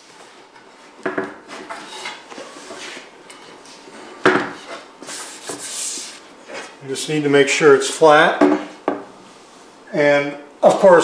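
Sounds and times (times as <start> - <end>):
wood sliding and rubbing: 3.9 - 6.8.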